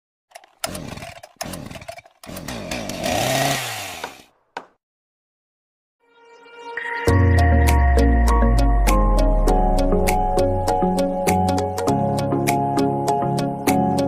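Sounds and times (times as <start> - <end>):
chainsaw revving: 0.3 - 4.3
music: 6.0 - 14.0.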